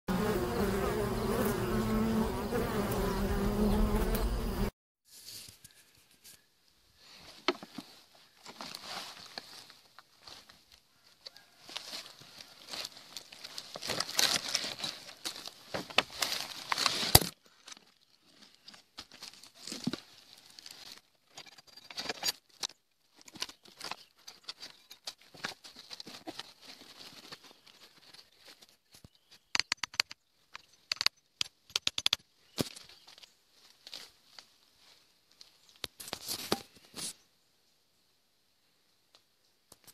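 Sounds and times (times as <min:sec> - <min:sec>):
sharp clicks: 0:29.6 - 0:32.2.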